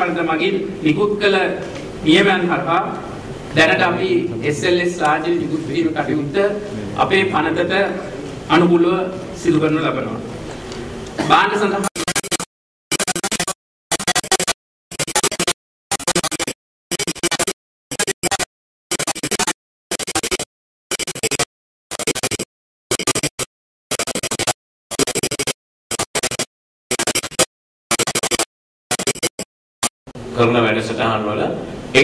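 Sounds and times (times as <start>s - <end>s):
scratchy garbled audio bursts: 11.2s - 30.0s.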